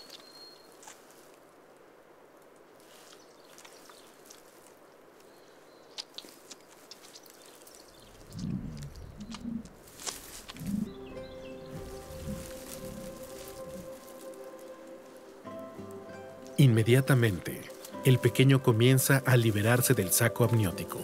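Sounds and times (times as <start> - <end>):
faint rustling: 0.0 - 18.4
small ticks: 2.4 - 10.9
bison low grunts: 8.2 - 9.8.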